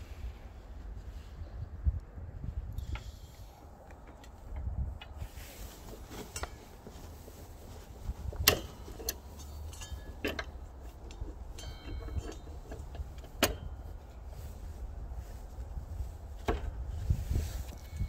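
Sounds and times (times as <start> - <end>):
wind rumble on microphone: 0.0 - 18.0
faint metallic ringing: 8.5 - 10.7, 11.4 - 14.6
metallic clicks and clinks: 8.5 - 13.8.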